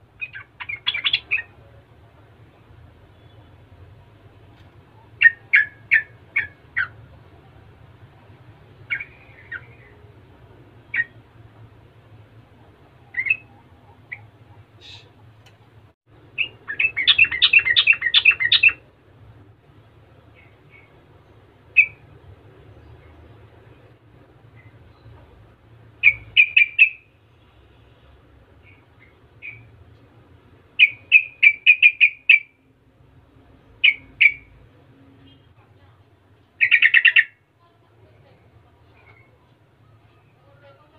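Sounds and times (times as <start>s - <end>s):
bulbul chirping and singing: 0.1s - 1.8s, 4.9s - 7.1s, 8.8s - 10.2s, 13.0s - 15.2s, 16.2s - 18.9s, 20.2s - 23.4s, 26.0s - 27.2s, 28.6s - 29.8s, 30.7s - 32.7s, 33.6s - 34.6s, 36.6s - 37.4s.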